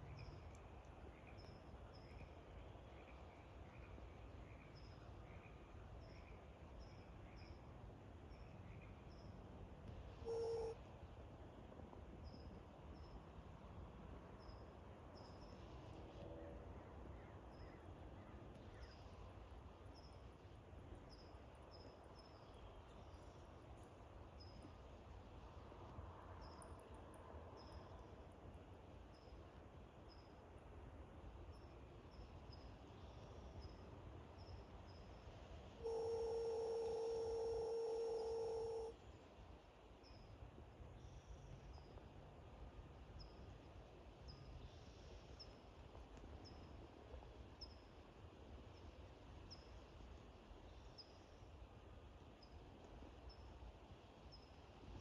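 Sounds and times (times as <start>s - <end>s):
faint high chirps: 10.2s - 10.8s, 35.8s - 39.0s
steady electronic tone: 35.9s - 38.9s.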